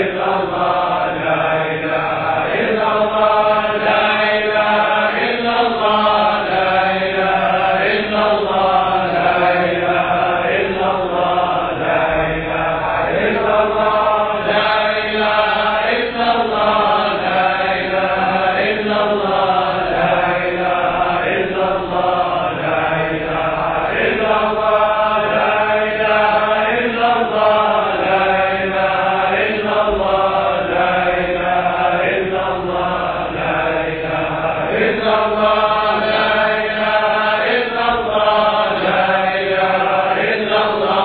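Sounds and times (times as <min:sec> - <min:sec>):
voices chanting: 0:00.0 - 0:41.0.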